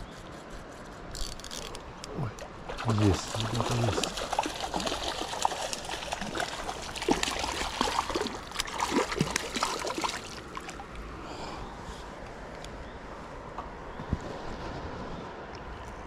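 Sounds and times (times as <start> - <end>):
fish splashing in water: 2.6 - 11.0.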